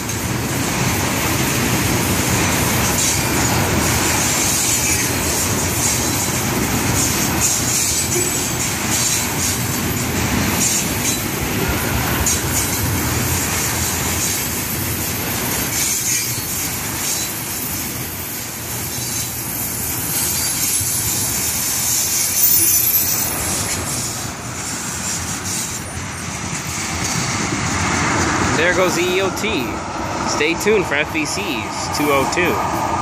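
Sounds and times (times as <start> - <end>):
train wheels clacking over rail joints: 0.0 - 19.4, 20.0 - 30.8
high wheel squeal: 4.2 - 13.0, 13.8 - 26.3.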